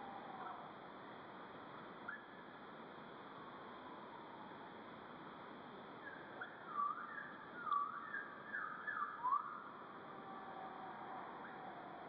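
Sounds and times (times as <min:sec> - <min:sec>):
background hiss: 0:00.0 - 0:12.0
songbird whistling: 0:06.1 - 0:09.6.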